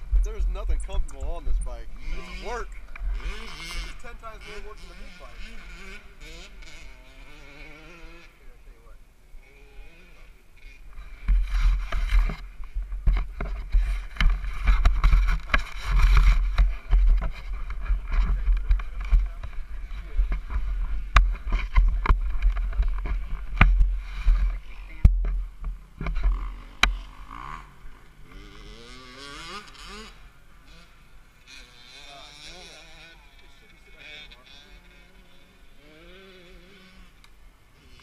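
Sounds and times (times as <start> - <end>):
wind rumble on microphone: 10.9 - 27.0.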